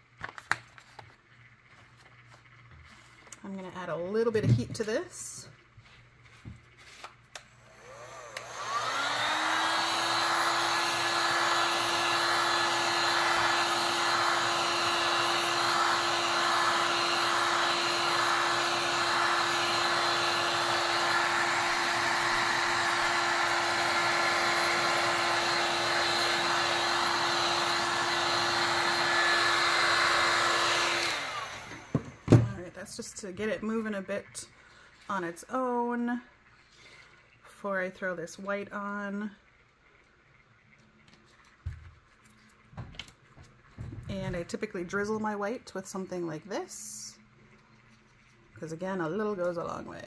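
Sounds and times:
heat gun fan blowing: 0:07.3 - 0:33.7.

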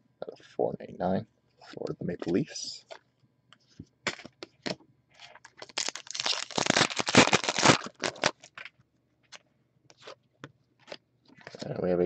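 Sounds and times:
cards and packaging crinkling: 0:04.1 - 0:10.2.

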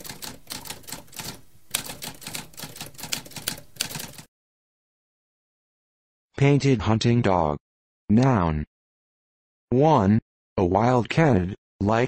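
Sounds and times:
typewriter keys clacking: 0:00.0 - 0:04.3.

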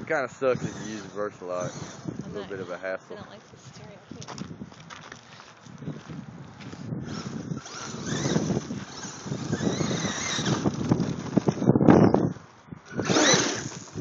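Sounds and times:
electric motor whine: 0:00.4 - 0:02.8, 0:07.0 - 0:14.0
tyres crunching gravel: 0:02.6 - 0:11.8.

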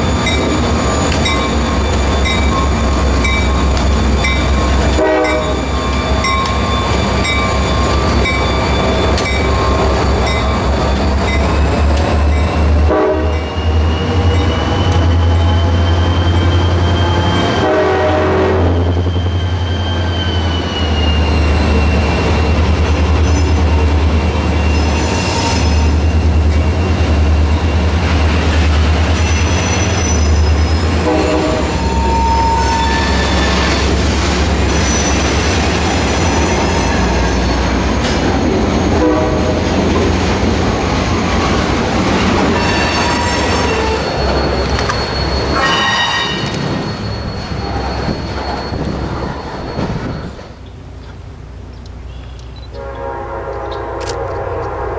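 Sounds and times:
high-pitched wheel squeal: 0:00.0 - 0:11.8, 0:13.3 - 0:17.8, 0:18.6 - 0:34.0, 0:34.6 - 0:37.8, 0:42.4 - 0:50.7
diesel locomotive rumble: 0:00.0 - 0:54.9
train cars rolling past: 0:00.0 - 0:54.9.

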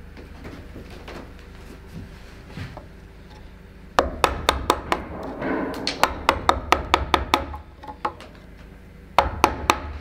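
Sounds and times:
mallet knocking on gouge: 0:04.0 - 0:08.3, 0:09.2 - 0:10.0.

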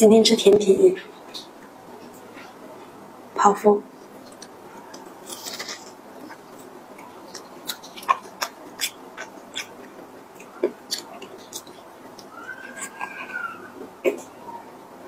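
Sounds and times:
crispy pastry crackling and crunching: 0:04.2 - 0:13.2.

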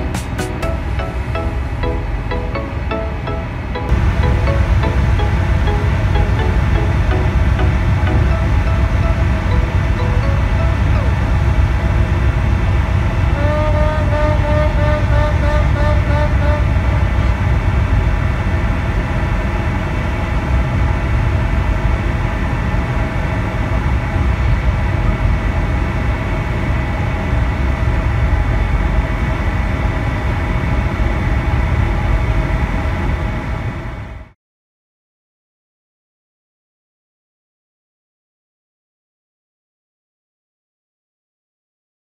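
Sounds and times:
short wavering pitched notes: 0:00.0 - 0:11.9
low mechanical rumble: 0:00.0 - 0:34.3.

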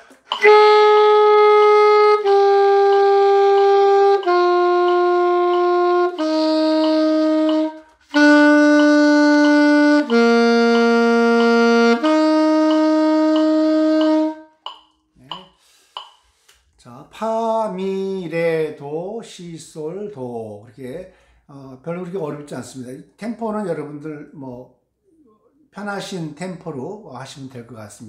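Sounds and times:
metronome ticking: 0:00.0 - 0:16.3
alto saxophone sustained notes: 0:00.1 - 0:14.5.

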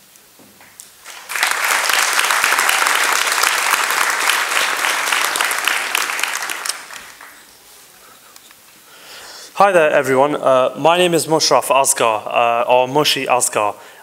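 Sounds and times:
audience applauding: 0:00.9 - 0:07.6.

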